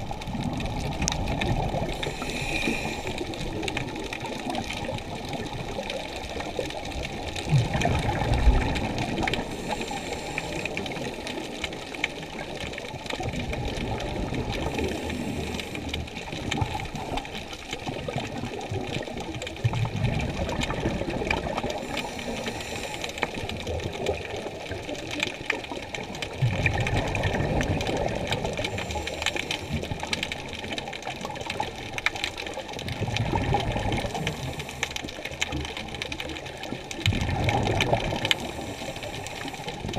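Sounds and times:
muffled underwater rushing water: 0.0 - 39.9.

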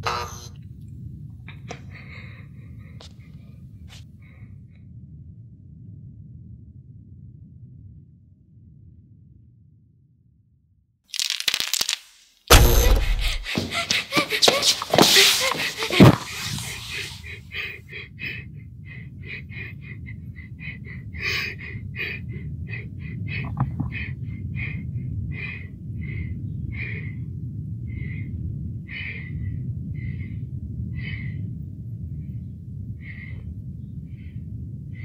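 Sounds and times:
steady low rumble: 0.6 - 10.0, 12.5 - 14.4, 15.4 - 35.0
person breathing shakily: 1.5 - 4.5, 12.5 - 31.5.

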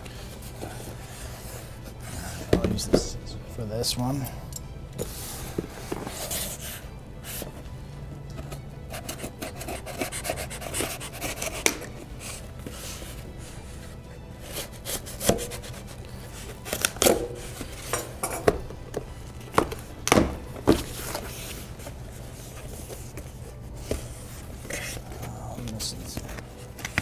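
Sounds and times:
cardboard scraping: 5.0 - 7.6
scissors slitting tape: 16.6 - 17.3.

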